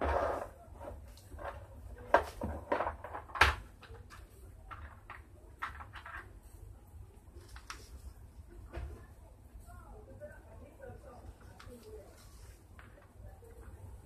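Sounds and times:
plastic box knocking on tiled floor: 0:02.1 - 0:03.6.

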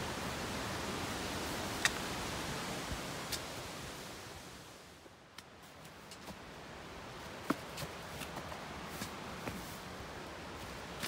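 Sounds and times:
footsteps on rocky trail: 0:05.4 - 0:06.5, 0:07.1 - 0:11.0.

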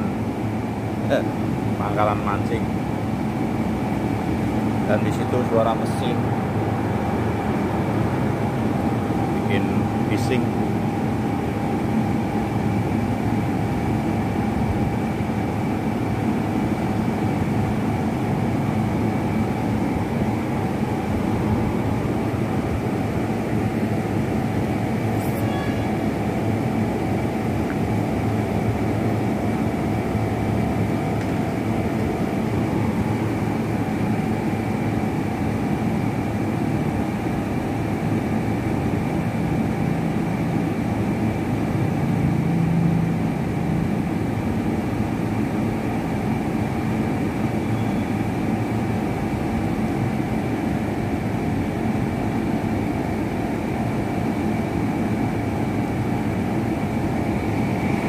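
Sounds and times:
machinery droning: 0:00.0 - 0:58.0.

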